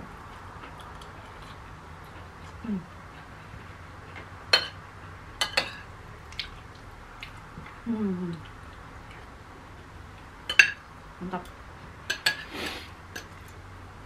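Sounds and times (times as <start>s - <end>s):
cutlery clinking on plates: 4.6s - 4.8s, 12.1s - 12.5s.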